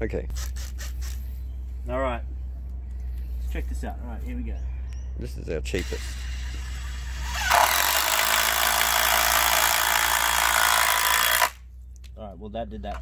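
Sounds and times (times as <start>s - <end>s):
impact driver driving screw into wood: 5.8s - 11.6s.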